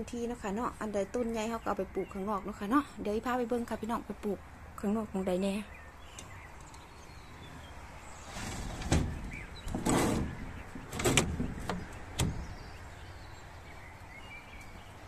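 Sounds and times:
sliding door scraping along track: 7.4s - 11.6s.

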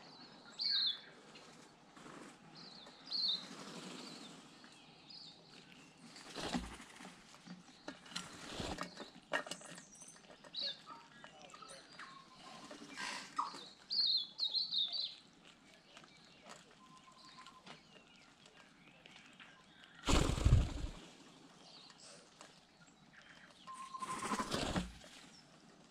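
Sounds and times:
bird calls and clicks: 0.1s - 25.9s
bird wingbeats: 6.0s - 7.5s, 20.0s - 21.2s, 24.0s - 25.2s.

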